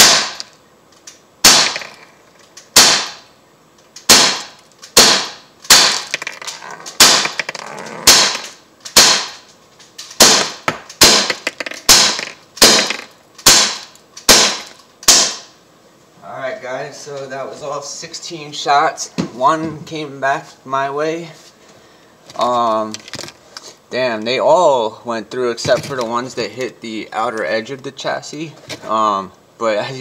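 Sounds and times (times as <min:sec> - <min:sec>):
air pistol sharp pops: 0:00.0 - 0:00.6, 0:01.4 - 0:03.3, 0:04.0 - 0:06.2, 0:06.9 - 0:07.5, 0:08.1 - 0:15.5.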